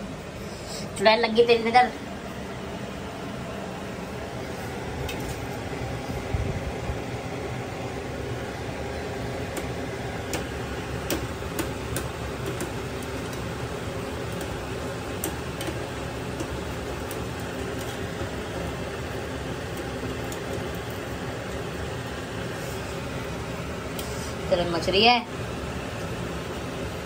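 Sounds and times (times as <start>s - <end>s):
food crackling in hot oil: 6.7s - 27.0s.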